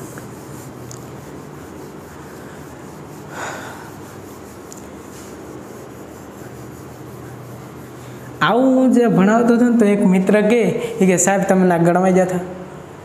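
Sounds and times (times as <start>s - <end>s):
duster rubbing whiteboard: 0.0s - 9.8s
room hum: 0.0s - 13.0s.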